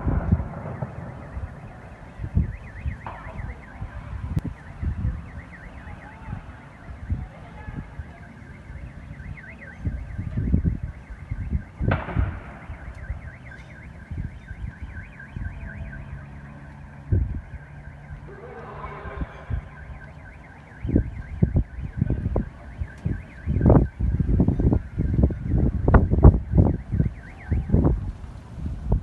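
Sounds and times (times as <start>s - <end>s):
low thuds and rumbles: 0.0s - 5.4s, 10.2s - 15.8s
car alarm warbling: 0.0s - 28.0s
distant sharp bang: 2.6s - 4.4s, 11.9s - 13.7s.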